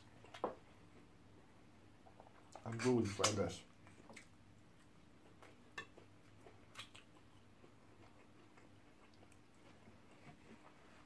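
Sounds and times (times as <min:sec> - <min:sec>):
faint eating clicks: 0:02.1 - 0:10.3.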